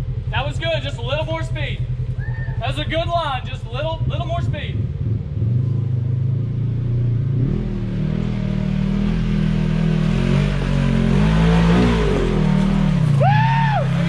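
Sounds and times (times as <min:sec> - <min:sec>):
off-road vehicle engines: 0:00.0 - 0:14.0.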